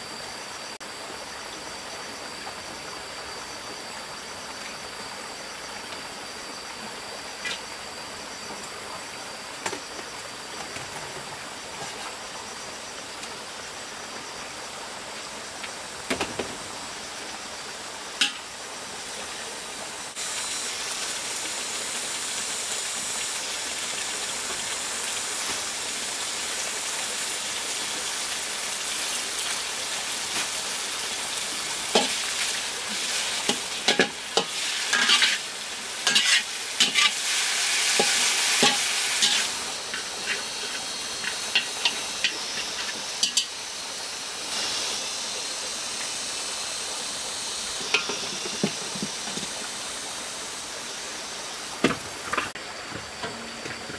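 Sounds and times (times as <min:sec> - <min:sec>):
greens frying in a wok: 0:00.0 - 0:53.9
metal spatula clanking on wok: 0:18.2 - 0:18.4, 0:33.5 - 0:35.4, 0:36.0 - 0:37.2, 0:38.0 - 0:43.5.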